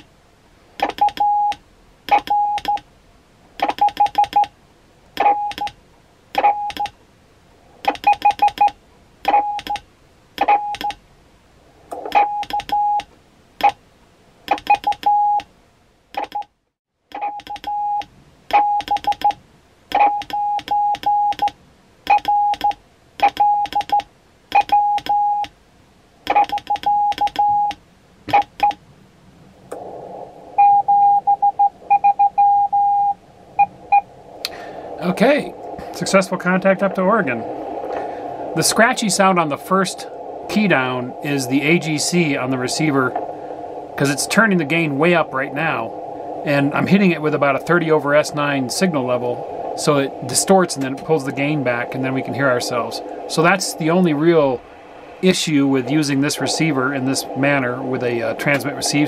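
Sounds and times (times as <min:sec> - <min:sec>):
morse code tone: 0:00.8 - 0:02.8, 0:03.6 - 0:04.5, 0:05.2 - 0:05.7, 0:06.4 - 0:06.9, 0:07.9 - 0:09.8, 0:10.4 - 0:11.0, 0:12.1 - 0:13.0, 0:14.5 - 0:15.4, 0:17.2 - 0:19.4, 0:20.0 - 0:25.5, 0:26.3 - 0:28.8, 0:30.6 - 0:34.1
radio band noise hiss: 0:33.1 - 0:59.0.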